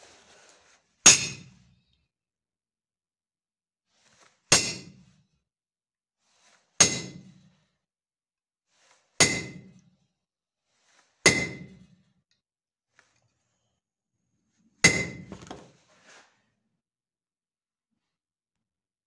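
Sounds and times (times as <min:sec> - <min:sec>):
hammer striking steel punch: 0:01.1 - 0:01.5, 0:04.5 - 0:05.0, 0:06.8 - 0:07.3, 0:09.2 - 0:09.8, 0:11.3 - 0:11.8, 0:14.8 - 0:15.4.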